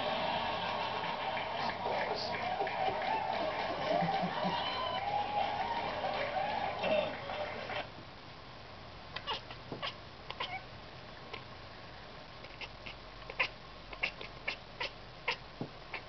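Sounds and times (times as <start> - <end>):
cat chattering: 9.2 - 10.7, 12.4 - 16.0.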